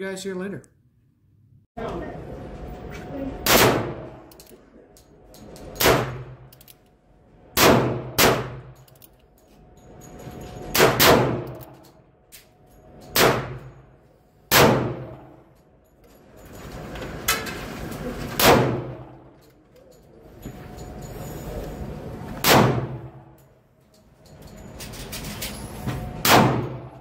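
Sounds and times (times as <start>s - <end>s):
revolver shots with ringing echo: 14.5s - 15.4s, 26.2s - 27.0s.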